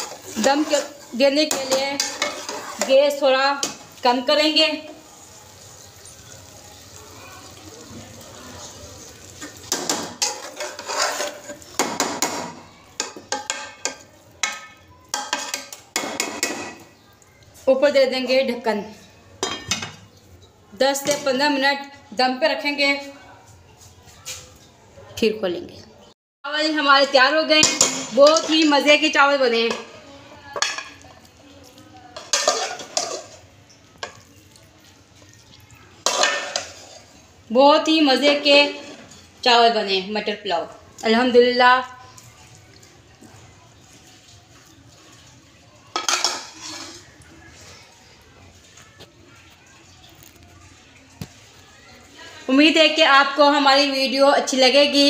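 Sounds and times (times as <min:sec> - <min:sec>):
metal spatula scraping a pot: 0:00.0 - 0:03.8, 0:08.6 - 0:12.4, 0:32.2 - 0:33.5, 0:36.0 - 0:37.2, 0:38.4 - 0:39.4, 0:45.9 - 0:47.7.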